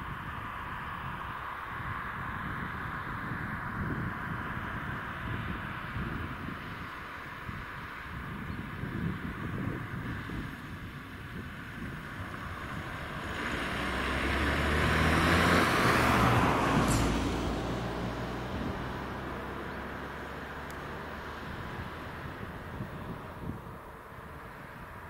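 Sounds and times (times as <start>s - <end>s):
motor vehicle passing by: 10.3s - 25.0s.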